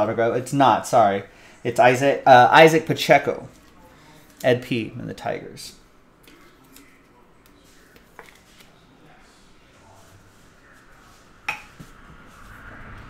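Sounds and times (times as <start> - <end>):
handling trading cards: 6.2 - 8.8.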